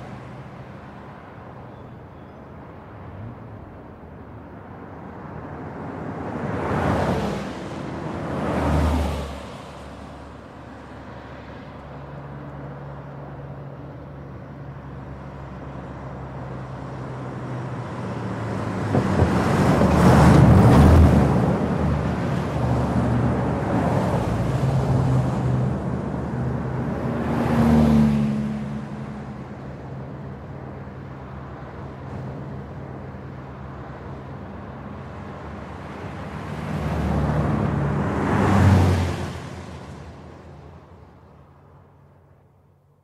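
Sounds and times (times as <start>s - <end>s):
vehicles passing at speed: 0.0s - 43.0s.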